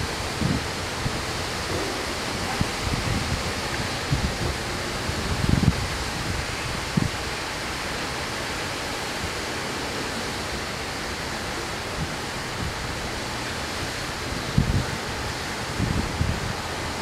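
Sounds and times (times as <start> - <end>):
wind bump on microphone: 0.0 - 7.3, 13.8 - 17.0
steady outdoor hiss: 0.0 - 17.0.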